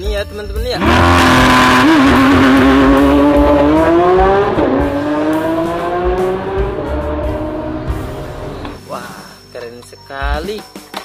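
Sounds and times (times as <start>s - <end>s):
sports car engine accelerating: 0.8s - 8.8s.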